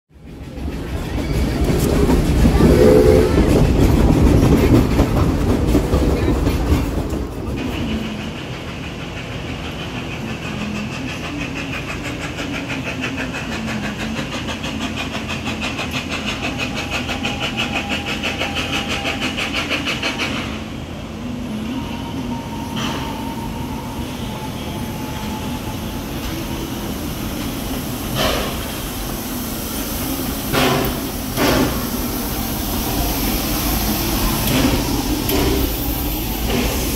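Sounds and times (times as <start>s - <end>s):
steam train rumbling: 0.1s - 36.9s.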